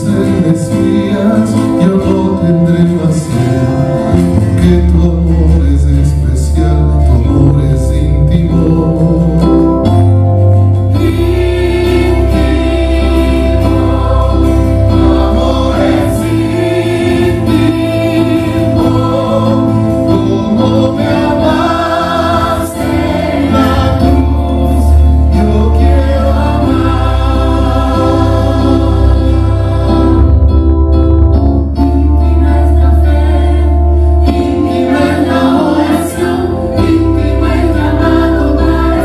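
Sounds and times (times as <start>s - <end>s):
keyboard holding low notes: 0.0s - 39.0s
choir singing a hymn: 10.8s - 30.7s, 31.8s - 39.0s.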